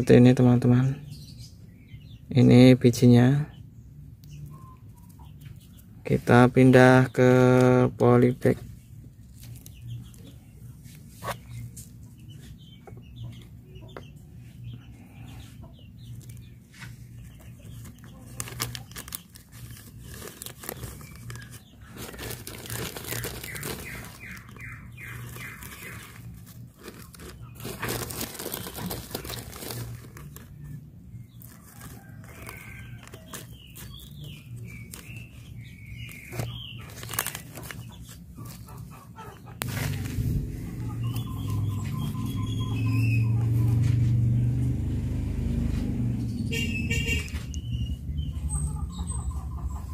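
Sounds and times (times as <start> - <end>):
chickens clucking: 4.2 - 6.5, 8.4 - 45.0, 45.6 - 49.9
rustling of soil and plastic bags: 5.4 - 12.7, 15.2 - 44.2.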